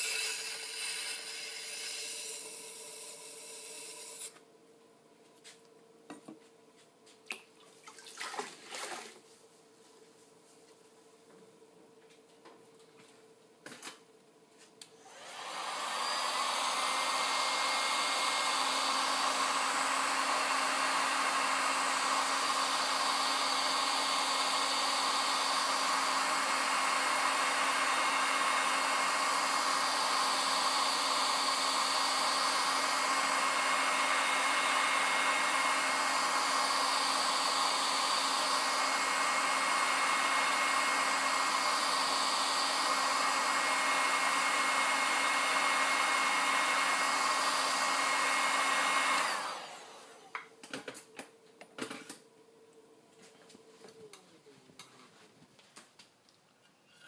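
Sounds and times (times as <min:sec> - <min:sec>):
heat gun blowing with whine: 0:00.0 - 0:04.4, 0:14.8 - 0:50.8.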